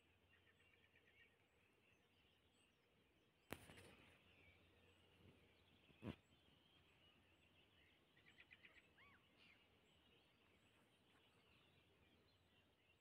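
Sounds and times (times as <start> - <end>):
distant songbirds twittering: 0.0 - 13.0.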